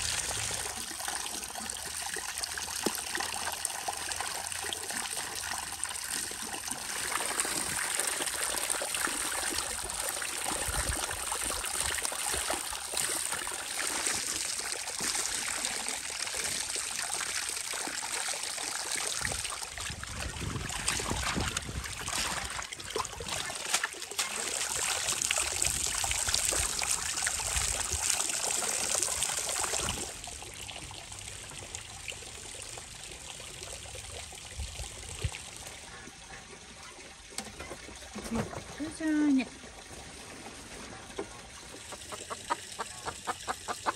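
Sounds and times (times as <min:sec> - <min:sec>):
water splashing over herbs: 0:18.4 - 0:30.2.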